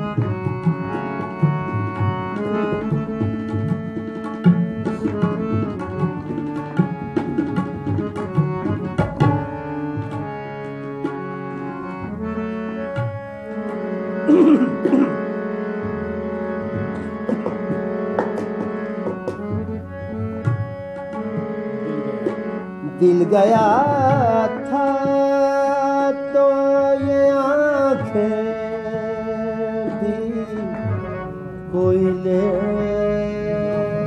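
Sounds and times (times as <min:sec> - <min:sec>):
tabla strokes: 0:00.0 - 0:12.2, 0:12.8 - 0:26.3
harmonium playing: 0:00.0 - 0:34.0.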